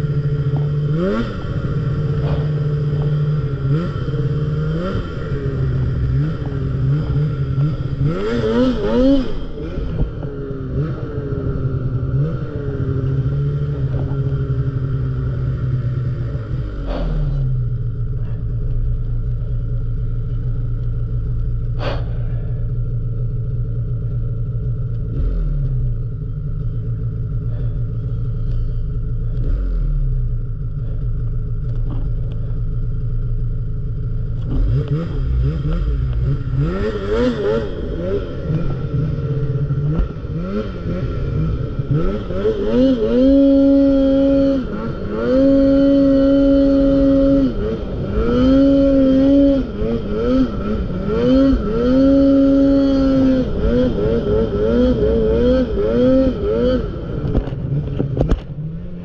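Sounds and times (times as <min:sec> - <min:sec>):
snowmobile engine revving: 0:00.0 - 0:20.8, 0:33.9 - 0:59.0.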